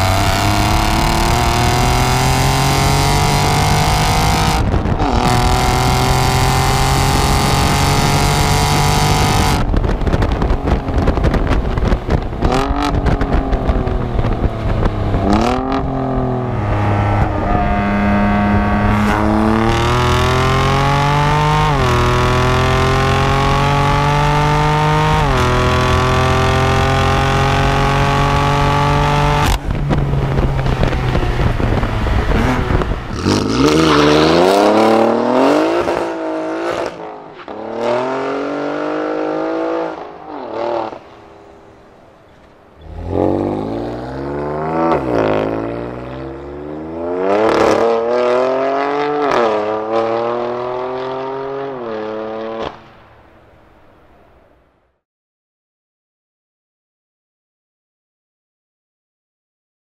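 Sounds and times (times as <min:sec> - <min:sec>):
sports car exhaust accelerating: 0:00.0 - 0:37.0.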